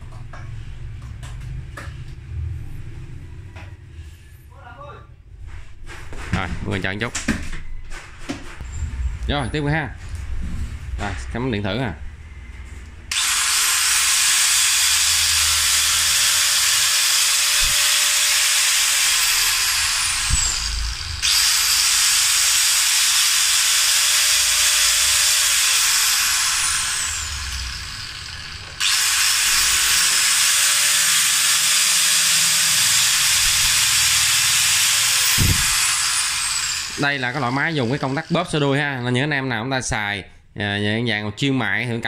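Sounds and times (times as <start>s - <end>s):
angle grinder whining: 12.3s - 39.0s
grinder spinning down: 13.1s - 38.9s.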